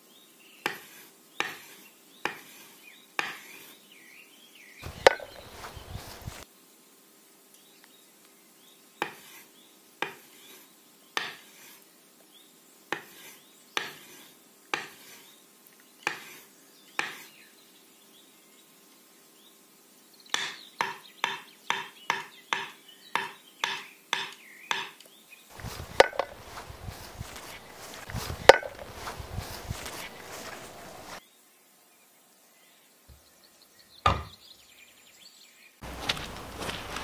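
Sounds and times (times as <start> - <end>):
knife cutting on wooden board: 4.8 - 6.4, 13.0 - 15.2, 25.5 - 31.2
rough noise: 4.8 - 6.4, 25.5 - 31.2, 35.8 - 37.0.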